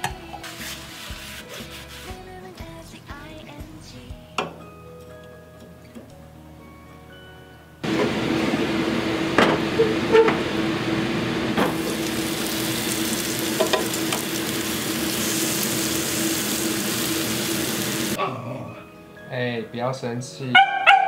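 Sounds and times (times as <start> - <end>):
meat and vegetables sizzling: 0.4 - 2.1, 7.9 - 18.2.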